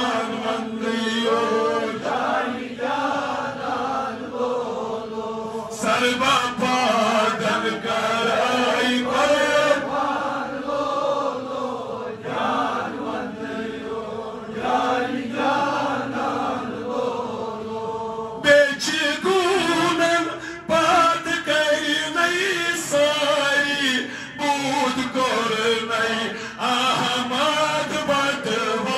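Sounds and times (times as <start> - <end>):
man chanting melodically: 0.0 - 2.2, 5.7 - 9.9, 18.4 - 28.9.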